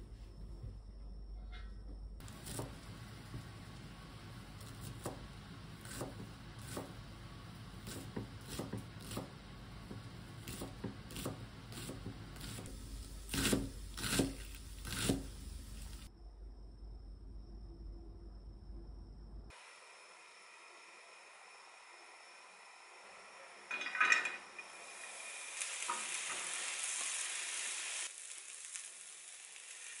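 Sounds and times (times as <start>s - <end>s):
knife slicing on a wooden board: 13.3s - 15.4s.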